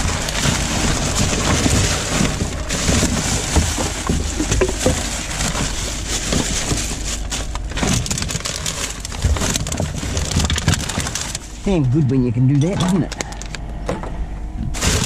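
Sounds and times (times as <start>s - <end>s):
rubbish rustling in plastic bin: 0.0s - 11.9s, 14.7s - 15.0s.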